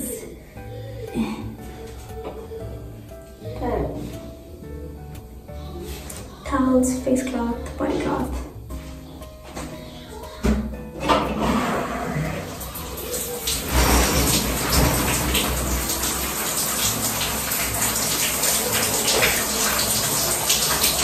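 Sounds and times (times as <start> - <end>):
shower water running: 11.0 - 21.0.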